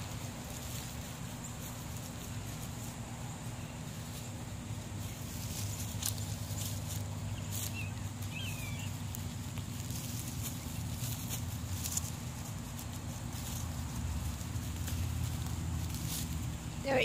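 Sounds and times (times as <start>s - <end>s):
animal rustling in grass: 0.0s - 17.0s
steady low hum: 0.0s - 17.0s.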